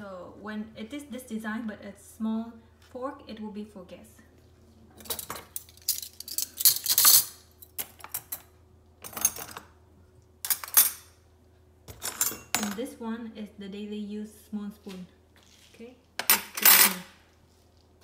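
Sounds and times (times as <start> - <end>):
cutlery clinking and rattling: 5.0 - 8.4.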